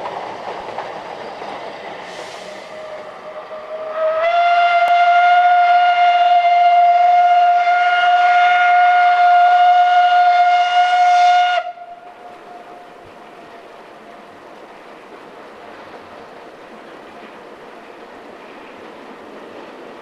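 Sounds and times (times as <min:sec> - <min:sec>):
steam locomotive whistle: 0:02.1 - 0:13.0.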